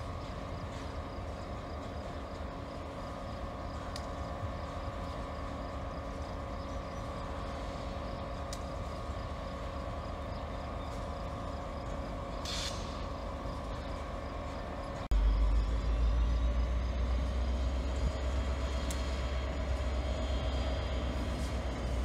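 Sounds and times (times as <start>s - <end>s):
diesel locomotive engine running: 0.0s - 22.0s
brief hiss: 12.4s - 13.0s.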